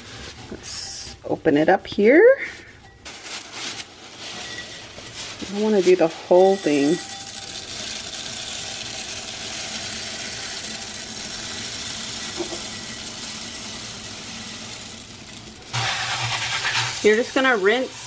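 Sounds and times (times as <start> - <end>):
nuts rattling into glass bowl: 6.4 - 17.2
kitchen tap running: 6.7 - 18.0.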